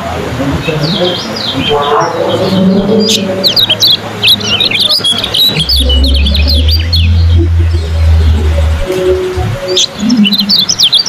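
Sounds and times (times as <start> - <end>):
low steady hum: 0.0 - 10.8
birds chirping rapidly: 0.6 - 11.0.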